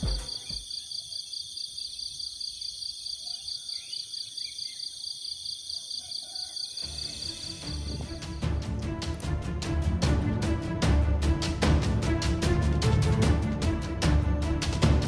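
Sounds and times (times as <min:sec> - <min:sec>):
music: 0:00.0 - 0:00.4, 0:06.8 - 0:15.0
insects trilling: 0:00.0 - 0:08.1.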